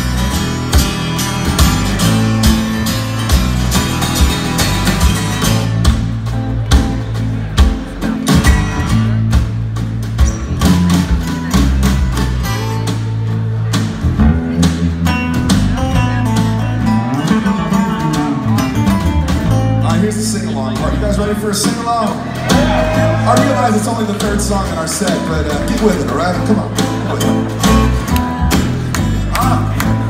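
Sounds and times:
drum kit hits: 0:00.0 - 0:12.4
electric bass notes: 0:00.0 - 0:30.0
live band playing: 0:00.0 - 0:30.0
strummed acoustic guitars: 0:00.0 - 0:30.0.

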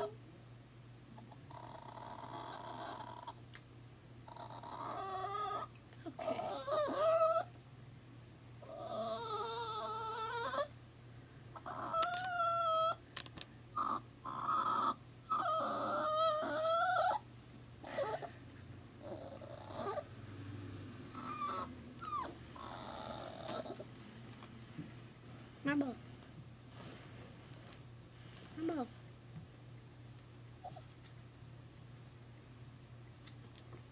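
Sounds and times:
puppy whining: 0:01.2 - 0:03.4, 0:04.2 - 0:07.6, 0:08.6 - 0:10.8, 0:11.6 - 0:13.0, 0:13.7 - 0:18.4, 0:19.0 - 0:20.1, 0:21.1 - 0:23.9, 0:30.6 - 0:30.9.

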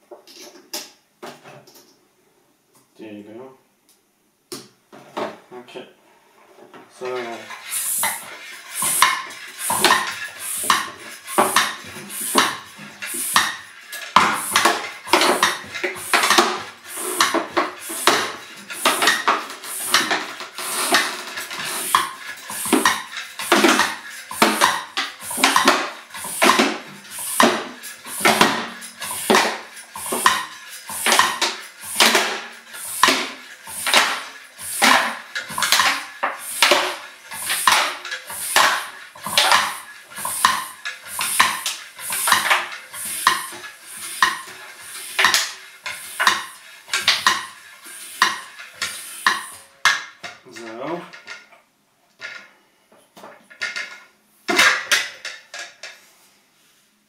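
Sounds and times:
hand bicycle pump hissing: 0:07.2 - 0:50.1.

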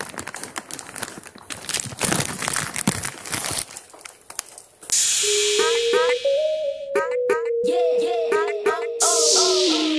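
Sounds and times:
music: 0:05.1 - 0:09.9.

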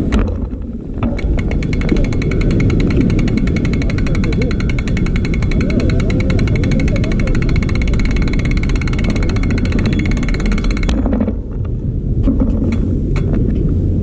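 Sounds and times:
scattered clicks: 0:00.0 - 0:11.8
wind buffeting microphone: 0:00.0 - 0:14.0
rapid even ticking: 0:01.0 - 0:11.5.

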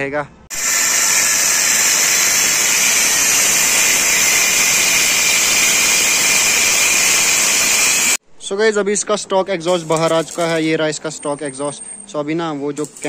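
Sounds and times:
power tool cutting metal pipe: 0:00.5 - 0:08.2.

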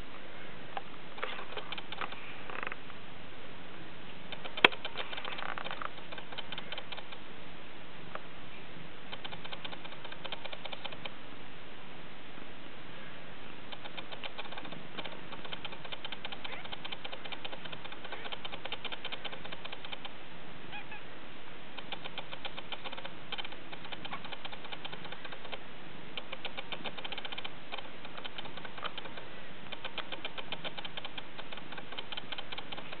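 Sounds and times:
kittens nursing clicking and buzzing: 0:00.8 - 0:02.8, 0:04.3 - 0:07.2, 0:09.1 - 0:11.2, 0:13.7 - 0:20.2, 0:21.8 - 0:33.0.

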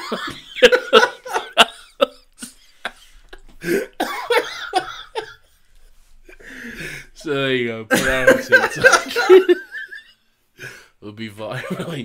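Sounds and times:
man laughing: 0:00.0 - 0:05.5, 0:07.9 - 0:10.1
man coughing: 0:03.6 - 0:05.4.

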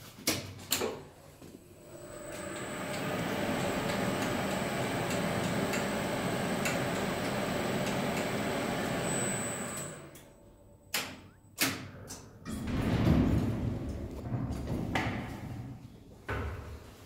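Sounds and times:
elevator motor hum and whine: 0:01.4 - 0:11.6.

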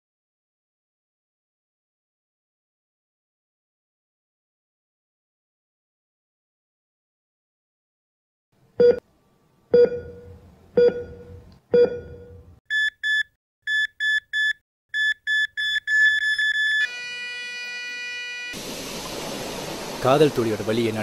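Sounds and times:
heart monitor beeps: 0:08.8 - 0:09.0, 0:09.8 - 0:16.9
heart monitor flatline tone: 0:09.8 - 0:18.5.

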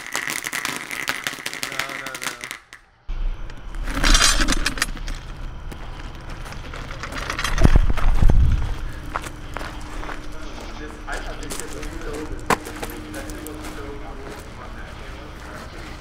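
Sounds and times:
firework fountain crackling: 0:00.0 - 0:02.8
wind rumble on microphone: 0:07.4 - 0:09.2.

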